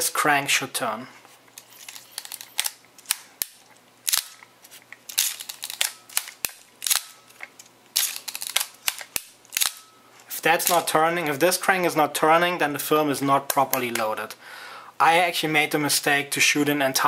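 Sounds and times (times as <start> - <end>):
film advance lever ratcheting: 1.6 - 4.4, 5.1 - 9.8.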